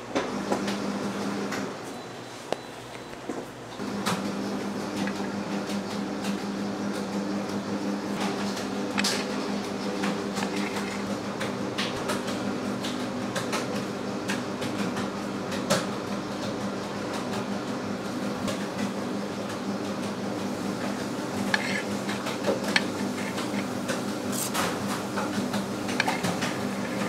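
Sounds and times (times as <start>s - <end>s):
electric motor humming: 7.6s - 12.0s, 20.6s - 27.0s.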